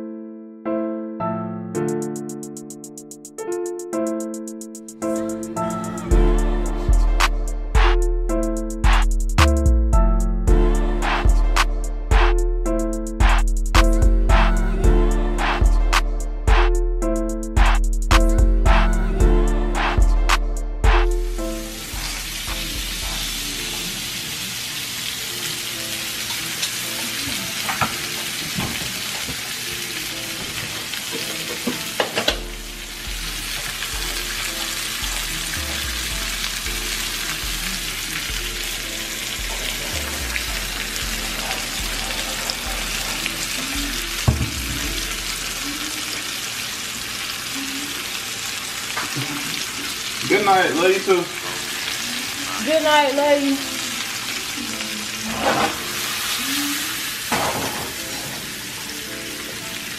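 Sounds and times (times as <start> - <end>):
steaks sizzling in a frying pan: 21.3 - 59.9.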